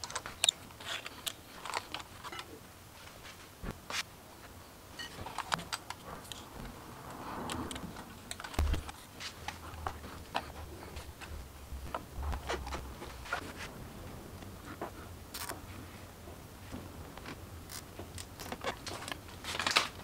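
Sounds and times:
low thud: 8.6 - 8.9.

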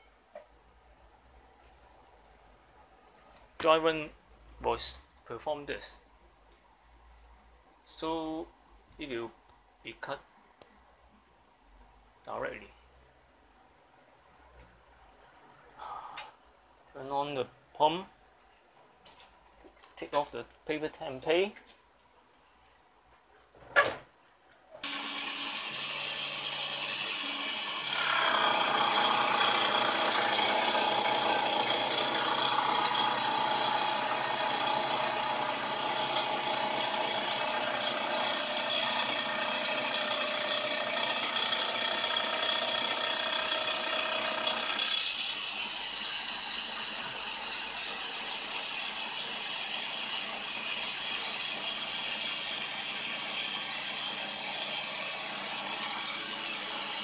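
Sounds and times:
saw blade high whine: 24.8 - 43.1
blade cutting metal: 24.8 - 57.0.

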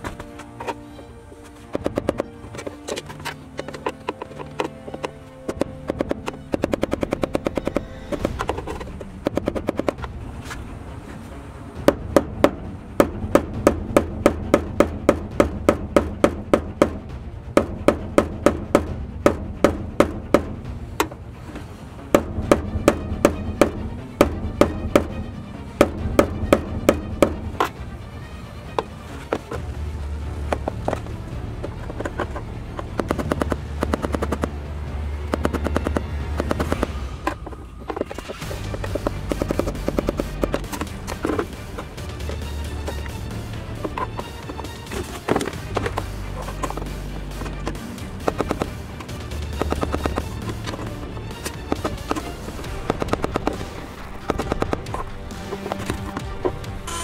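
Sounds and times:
hammer tapping on metal rod: 22.2 - 25.1.

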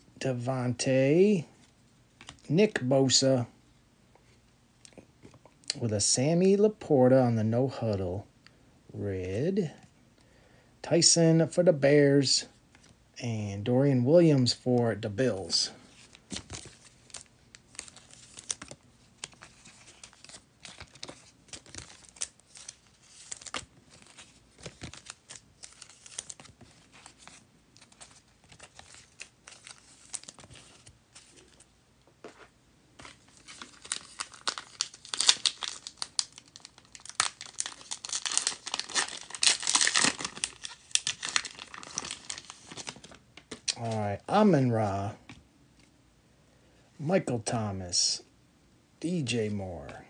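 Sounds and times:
foil pack crinkling and tearing: 16.1 - 31.6, 33.1 - 44.0.

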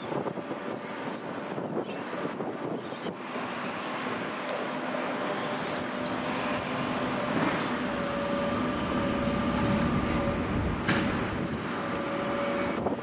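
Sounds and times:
electric train running noise: 3.2 - 13.0.

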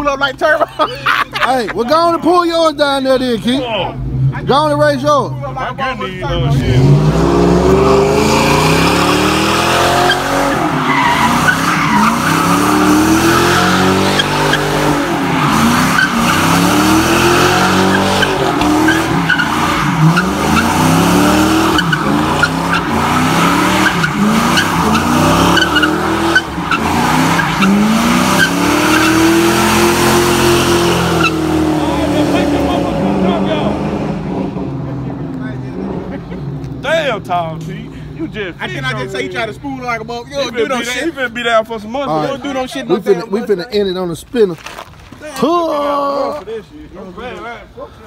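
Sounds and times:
car engine revving: 3.1 - 40.0
tyres screeching: 6.5 - 33.8.

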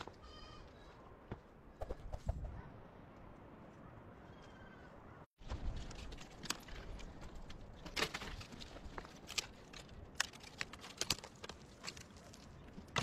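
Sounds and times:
dry branches crackling over stones: 5.4 - 13.0.

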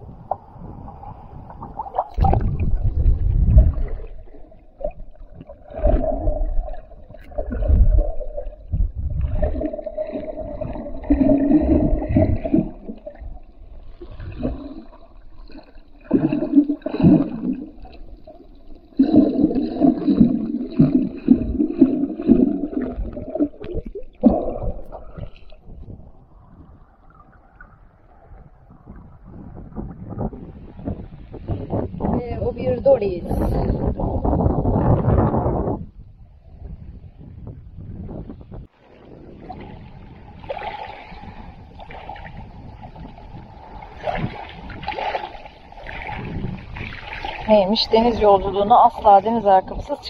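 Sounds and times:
low rumbling thumps: 0.0 - 13.8
muffled water sloshing underwater: 0.0 - 50.0.

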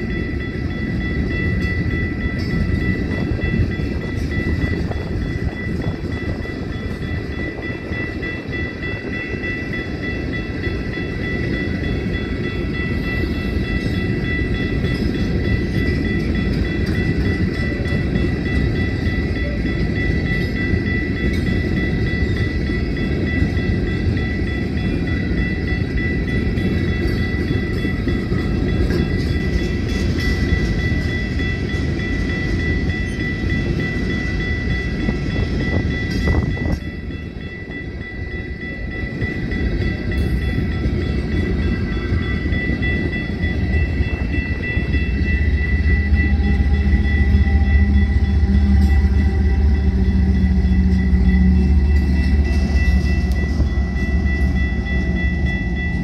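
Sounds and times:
steady high-pitched tone: 0.0 - 56.0
steel wheels rumbling on rail: 0.0 - 56.0.

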